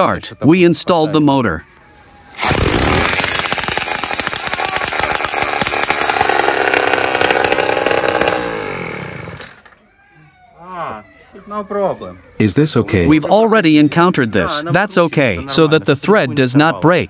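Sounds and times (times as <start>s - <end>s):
electric drill cranking: 2.3s - 9.8s
small engine running: 2.4s - 9.8s.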